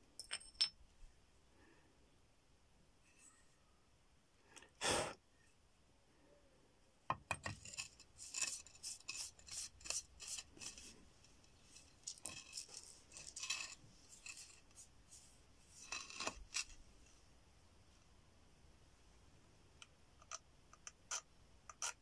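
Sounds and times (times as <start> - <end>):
stone scraping bone blade: 7.5 - 11.0, 11.8 - 14.8, 15.8 - 16.8, 20.2 - 22.0.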